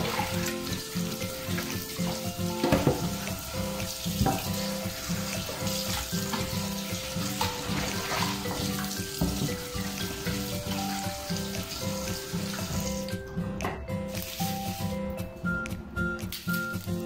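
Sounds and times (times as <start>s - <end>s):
tap water running into sink: 0.0s - 15.2s
background music with beat: 0.0s - 17.0s.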